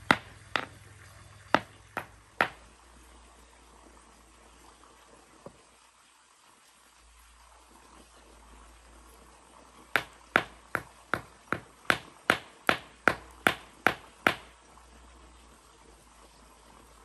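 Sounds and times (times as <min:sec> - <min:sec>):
sharp knocks on hard surface: 0:00.0 - 0:00.8, 0:01.6 - 0:02.6, 0:10.0 - 0:14.5.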